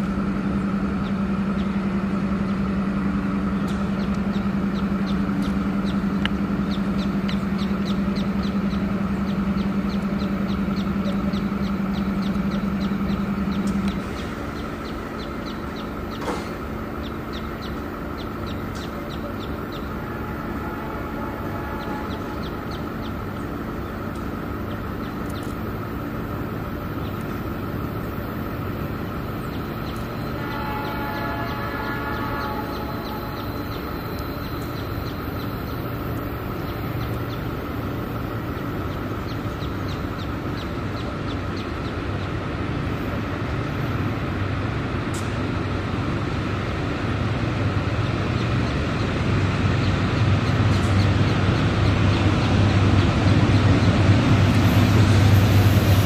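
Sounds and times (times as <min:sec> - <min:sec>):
engine idling: 0:00.0 - 0:56.0
birds chirping: 0:03.5 - 0:44.2.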